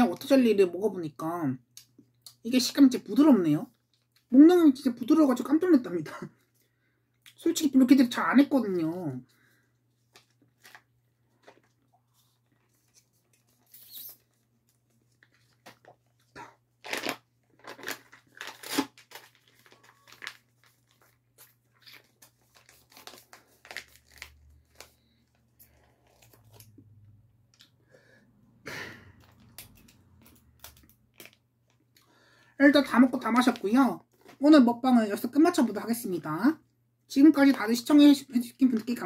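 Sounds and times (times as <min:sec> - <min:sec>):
plastic pouch crinkling: 0:10.0 - 0:26.8, 0:29.2 - 0:32.0.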